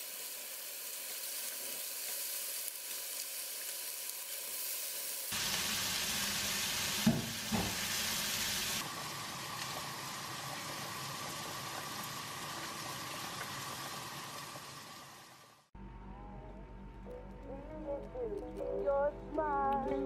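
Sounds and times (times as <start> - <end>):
pork sizzling in a frying pan: 0.0 - 15.6
water boiling hard in a pot: 0.0 - 15.7.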